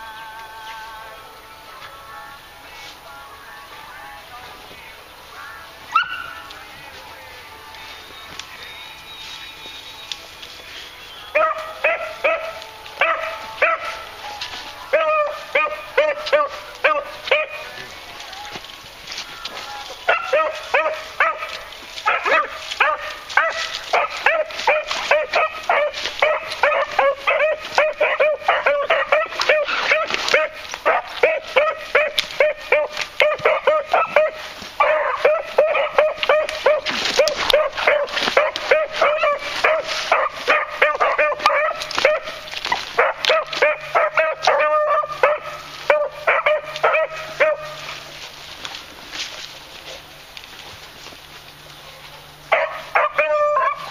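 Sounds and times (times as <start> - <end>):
dogs barking: 5.9 - 6.5, 11.2 - 14.2, 14.9 - 17.9, 19.6 - 48.4, 51.8 - 53.9.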